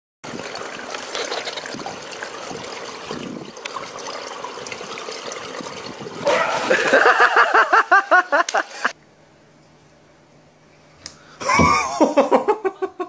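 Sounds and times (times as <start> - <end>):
pool water lapping and trickling: 0.2 - 9.0
person laughing loudly: 6.3 - 8.9, 11.4 - 13.0.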